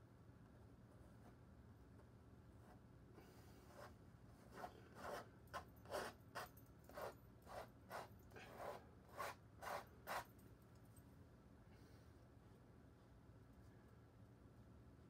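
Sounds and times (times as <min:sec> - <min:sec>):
paintbrush scraping canvas: 0:02.6 - 0:10.4.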